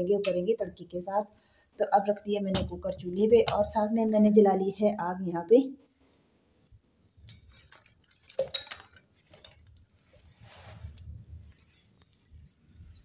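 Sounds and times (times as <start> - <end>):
twigs snapping and rustling: 7.1 - 10.0.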